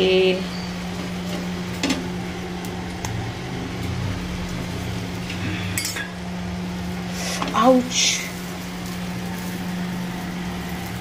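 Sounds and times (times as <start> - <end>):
steady low hum: 0.0 - 11.0
spoon scraping on iron griddle: 5.2 - 6.2.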